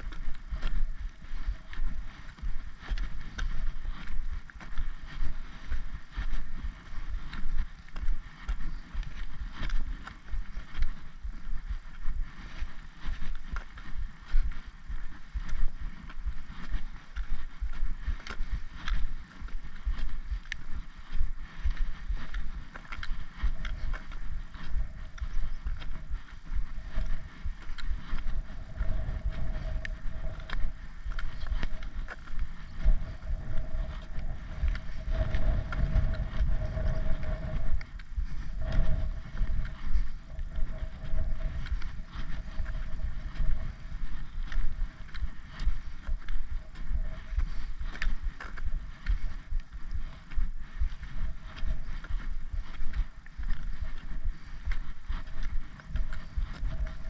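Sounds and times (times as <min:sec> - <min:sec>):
footsteps on tarmac: 0:00.0 - 0:57.0
wind buffeting microphone: 0:00.0 - 0:57.0.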